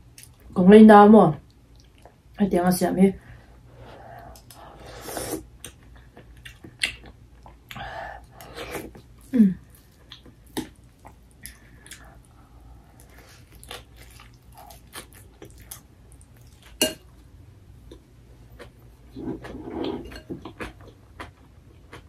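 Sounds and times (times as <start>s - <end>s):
person chewing: 4.2s - 16.9s, 17.8s - 22.0s.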